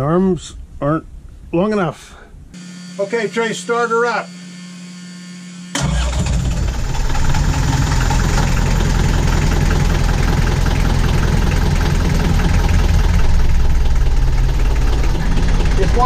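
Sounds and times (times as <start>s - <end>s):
diesel engine idling: 5.8s - 16.0s.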